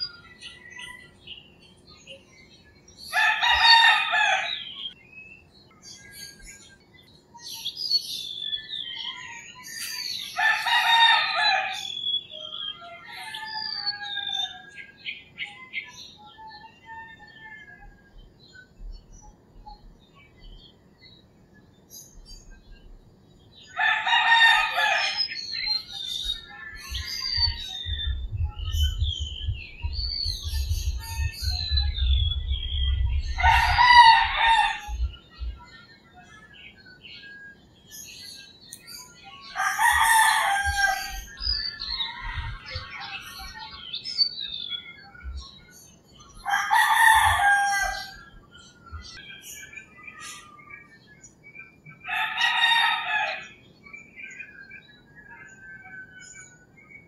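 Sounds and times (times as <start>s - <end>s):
small birds chirping: 0.0s - 57.0s
roosters crowing: 3.0s - 5.0s, 8.8s - 15.1s, 23.6s - 29.4s, 30.4s - 35.2s, 39.4s - 43.6s, 46.3s - 49.6s, 52.0s - 53.6s.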